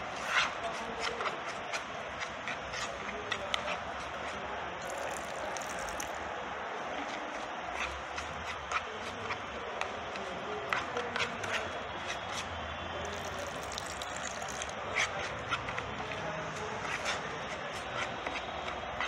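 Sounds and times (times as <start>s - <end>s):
spoon stirring wet mixture: 1.5s - 6.3s, 7.0s - 15.9s
milk pouring into bowl: 4.8s - 6.3s, 13.0s - 14.9s.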